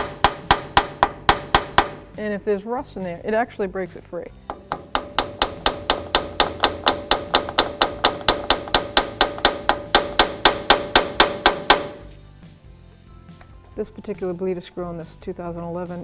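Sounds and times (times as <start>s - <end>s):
rapid tapping on metal: 0.0s - 2.1s, 4.4s - 12.0s.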